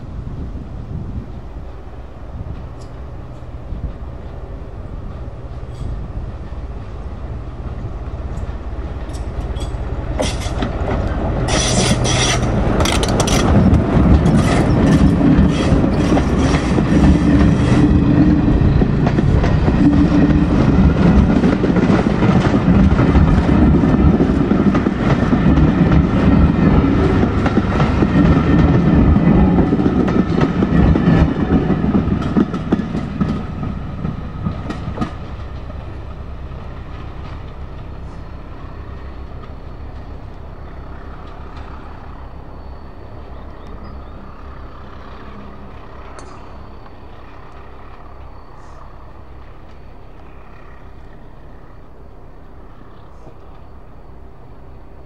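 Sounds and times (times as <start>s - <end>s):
diesel locomotive engine: 0.0s - 55.0s
wheels clattering over rail joints: 5.6s - 42.8s
high-pitched wheel squeal: 11.5s - 12.5s.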